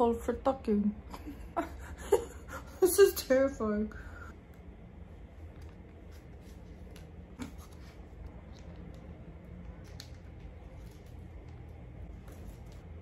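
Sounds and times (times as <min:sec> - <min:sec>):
low room hum: 0:00.0 - 0:13.0
sheet mask rustling: 0:05.2 - 0:08.8, 0:10.0 - 0:13.0.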